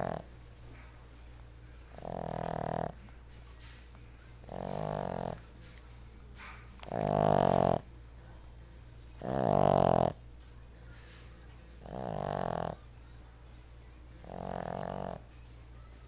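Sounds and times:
puppy snoring: 0.0 - 0.3, 1.7 - 5.8, 6.4 - 10.4, 11.0 - 13.0, 14.1 - 15.6.

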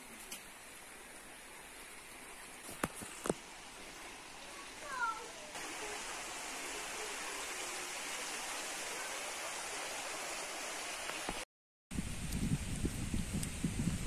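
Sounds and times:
stream rushing over stones: 0.0 - 11.4
wind buffeting microphone: 11.9 - 14.0.

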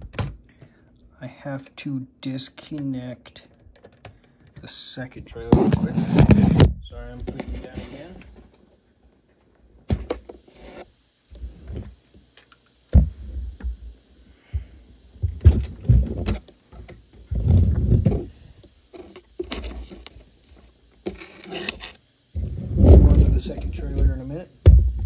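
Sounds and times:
heavy bumps near microphone: 17.3 - 18.3, 22.4 - 25.0.

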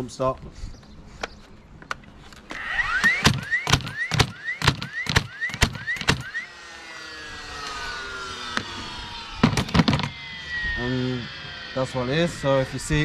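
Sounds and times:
nailer motor whining: 2.0 - 13.0
nail gun firing: 2.5 - 6.4, 9.4 - 10.1.

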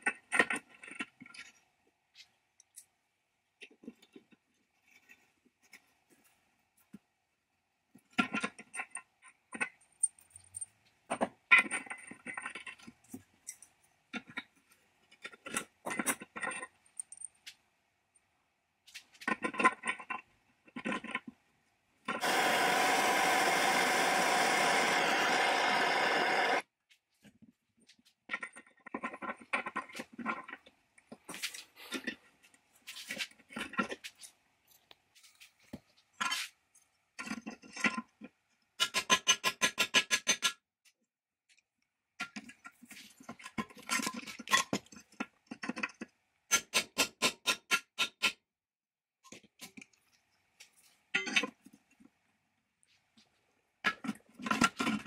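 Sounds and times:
steady mechanical noise: 22.1 - 26.6.

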